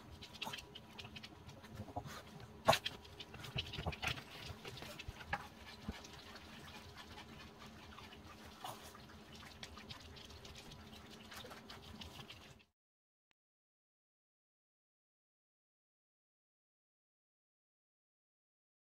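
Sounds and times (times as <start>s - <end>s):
dogs' paws clicking and tapping: 0.0s - 12.6s.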